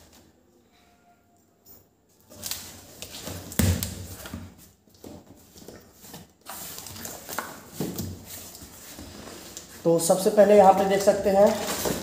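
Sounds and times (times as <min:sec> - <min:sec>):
cardboard scraping and rustling: 0:11.3 - 0:12.0.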